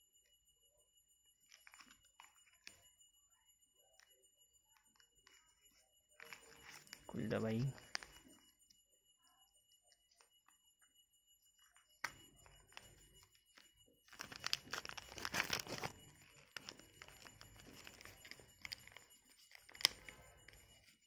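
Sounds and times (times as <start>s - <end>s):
plastic bags crinkling and tearing: 14.1s - 15.9s.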